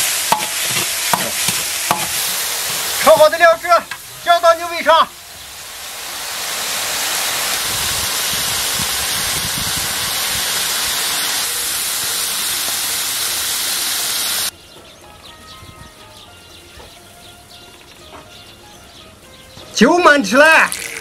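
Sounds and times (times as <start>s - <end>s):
hot sauce sizzling: 0.0s - 14.5s, 20.6s - 21.0s.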